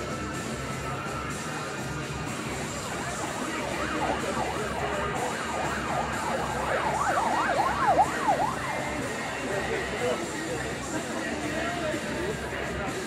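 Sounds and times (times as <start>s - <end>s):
yelping siren: 2.8s - 10.3s.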